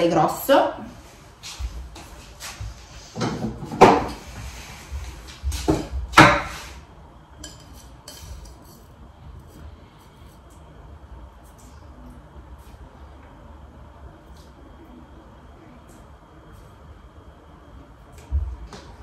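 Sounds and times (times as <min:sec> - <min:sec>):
utensils and glass clinking: 0:07.4 - 0:09.0.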